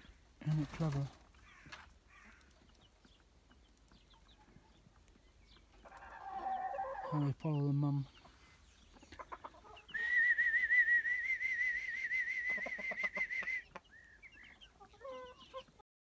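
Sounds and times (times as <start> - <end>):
chick peeps: 0.0 - 15.8
hen clucking softly: 1.4 - 10.1, 12.4 - 15.8.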